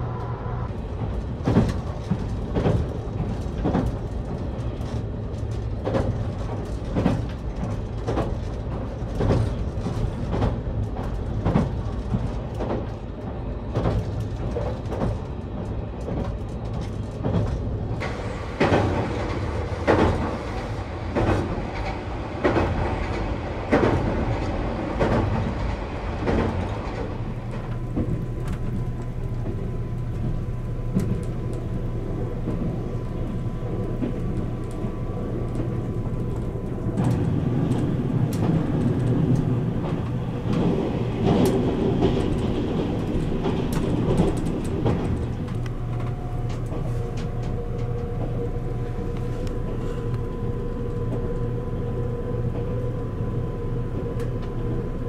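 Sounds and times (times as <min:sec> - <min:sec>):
train interior rumble: 0:00.0 - 0:55.0
wheels clicking over rail joints: 0:00.7 - 0:55.0.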